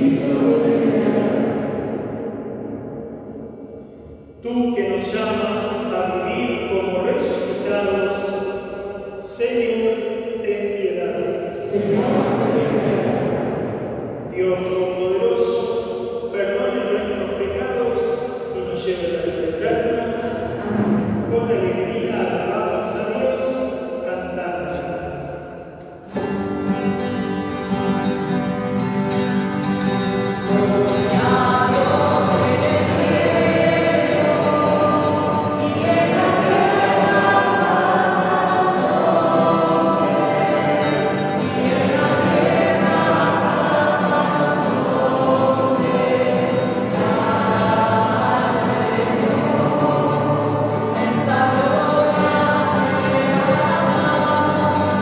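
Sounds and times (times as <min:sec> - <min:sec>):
choir singing a hymn: 0:00.0 - 0:03.5, 0:10.9 - 0:18.3, 0:19.0 - 0:22.6, 0:26.1 - 0:55.0.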